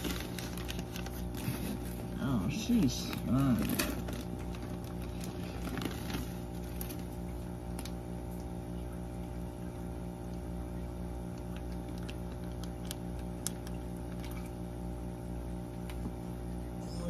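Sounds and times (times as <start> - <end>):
mechanical hum with pulsing: 0.0 - 17.0.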